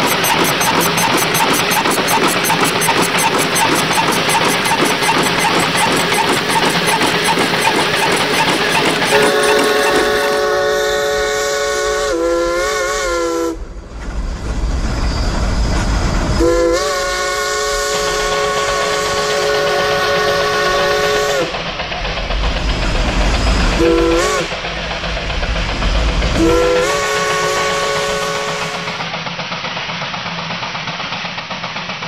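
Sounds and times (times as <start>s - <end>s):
steam whistle blasts: 9.0s - 13.6s, 16.4s - 21.5s, 23.8s - 24.5s, 26.4s - 29.0s.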